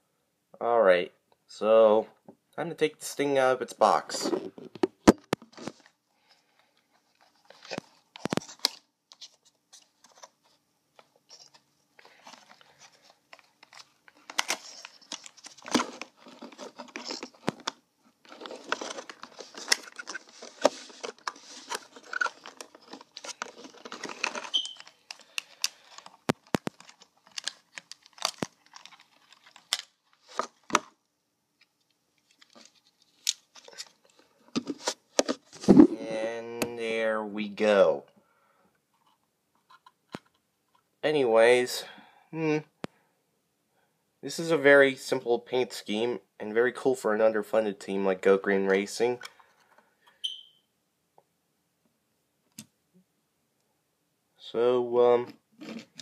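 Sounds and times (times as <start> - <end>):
packaging rustling and crinkling: 6.6 - 30.9, 32.2 - 35.8, 55.6 - 56.0
packaging tearing: 18.3 - 30.8.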